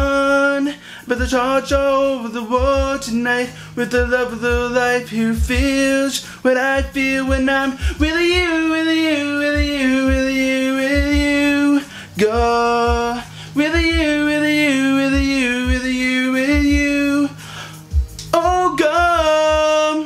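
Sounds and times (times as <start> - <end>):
backing track with low beat: 0.0 - 20.0
man singing wordless notes: 0.0 - 20.0.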